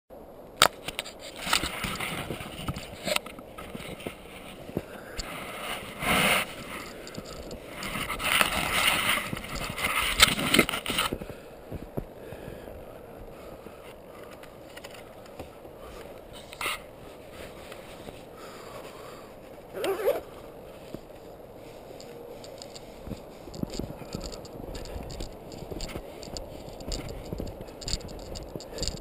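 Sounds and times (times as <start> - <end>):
camera handling rubbing and scraping: 0.6 - 11.3, 13.8 - 29.0
small clicks: 21.9 - 29.0.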